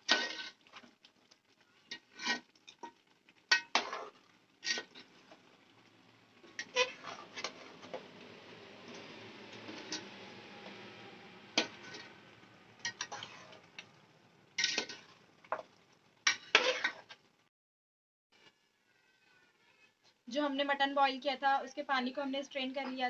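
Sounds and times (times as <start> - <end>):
soft frying hiss: 0.0 - 17.5, 18.4 - 23.0
metal spoon scraping steel pot: 3.5 - 5.1, 6.6 - 7.7, 11.6 - 12.1, 12.8 - 13.6, 14.6 - 15.1, 16.3 - 17.1.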